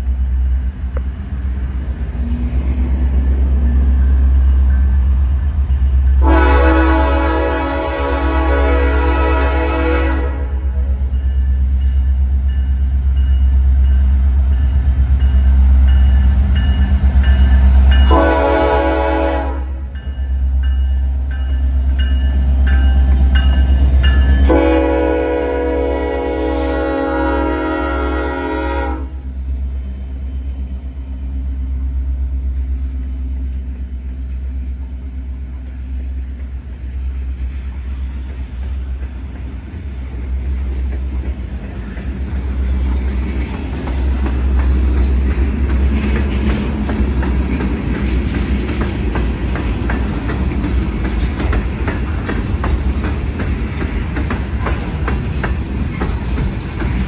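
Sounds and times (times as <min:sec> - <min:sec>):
deep locomotive rumble: 0:00.0 - 0:57.0
train horn blast: 0:06.2 - 0:11.0, 0:18.0 - 0:19.9, 0:24.1 - 0:29.4
wheels clicking over rail joints: 0:33.4 - 0:57.0.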